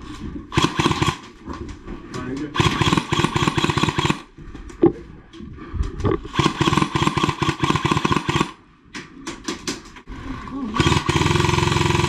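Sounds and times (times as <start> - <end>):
paintball marker firing bursts: 0.5 - 1.3, 2.6 - 4.3, 6.3 - 8.6, 10.8 - 12.0.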